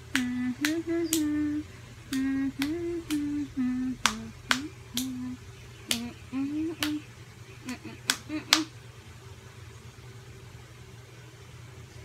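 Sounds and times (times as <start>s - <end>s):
woman humming a slow tune: 0.0s - 8.7s.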